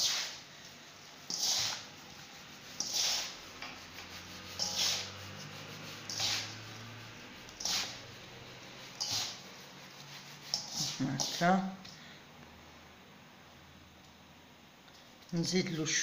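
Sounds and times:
hands rubbing semolina hiss: 0:01.3 - 0:08.3.

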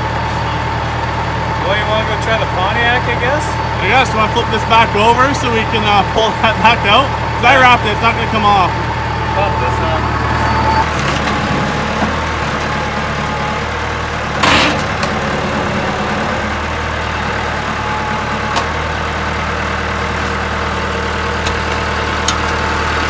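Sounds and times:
tractor diesel engine idling: 0:00.0 - 0:23.0.

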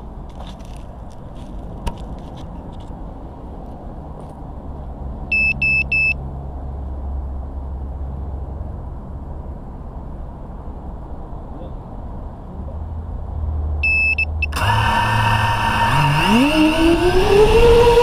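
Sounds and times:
short high beeps: 0:05.3 - 0:06.2, 0:13.8 - 0:14.6.

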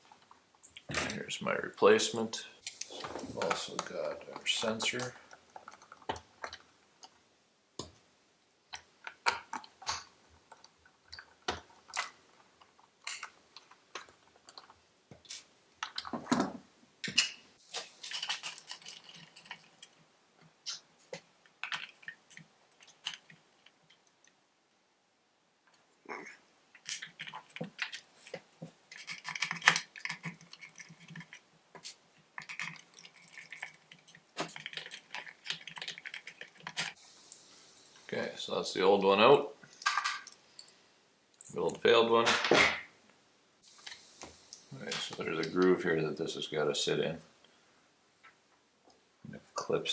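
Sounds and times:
plastic parts clicking and scraping: 0:02.6 - 0:07.2, 0:08.7 - 0:24.4, 0:26.7 - 0:37.0.

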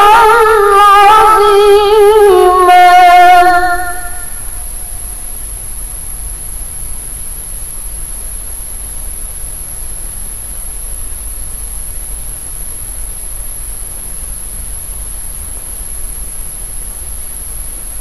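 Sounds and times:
thin high-pitched whine: 0:00.0 - 0:06.5
low mains hum: 0:00.0 - 0:18.0
recording hiss: 0:00.0 - 0:18.0.

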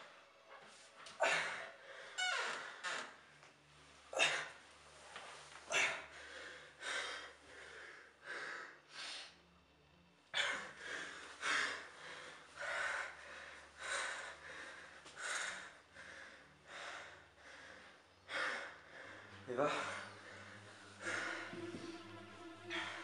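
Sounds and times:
man panting hard: 0:10.4 - 0:22.4.

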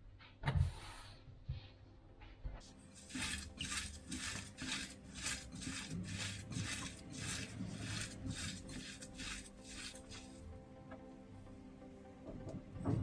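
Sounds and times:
hands squeezing dry bread: 0:03.0 - 0:10.4.

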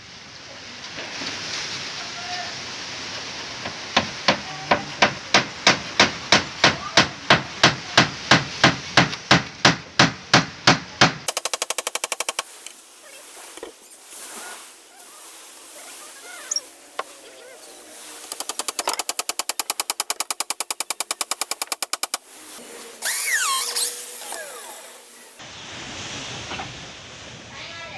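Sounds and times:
scattered knocks: 0:04.0 - 0:12.4
rapid tapping: 0:05.0 - 0:12.5, 0:18.3 - 0:22.2.

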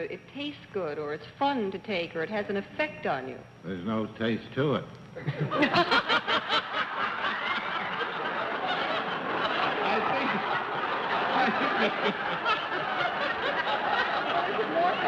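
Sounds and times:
audience laughter: 0:05.2 - 0:15.0
man laughing heartily: 0:05.2 - 0:15.0.

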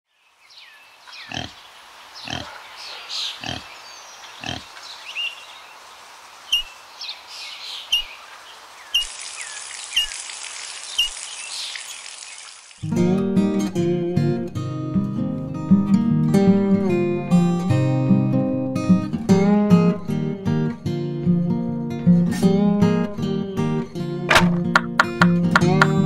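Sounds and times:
pig grunting: 0:01.2 - 0:01.6, 0:02.2 - 0:02.6, 0:03.2 - 0:03.7, 0:04.4 - 0:04.7
water running into plastic basin: 0:09.0 - 0:12.8.

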